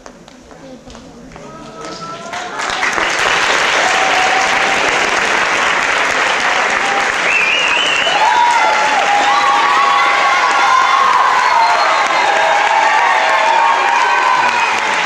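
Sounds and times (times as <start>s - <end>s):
audience applauding: 1.3s - 15.0s
shouts and whoops: 3.8s - 5.0s, 6.6s - 15.0s.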